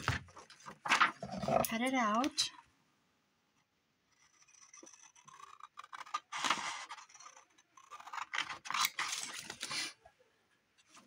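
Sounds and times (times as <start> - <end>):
scissors cutting paper: 4.2 - 10.0.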